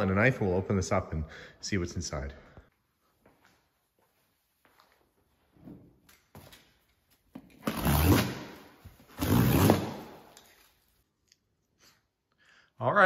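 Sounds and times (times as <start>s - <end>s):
box cutter tearing plastic wrap: 7.6s - 10.4s.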